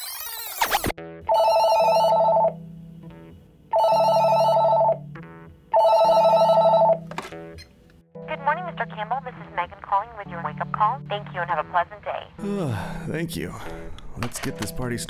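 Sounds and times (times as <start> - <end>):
telephone ringing with warbling trill: 0.0 - 2.6, 3.7 - 5.0, 5.7 - 7.0.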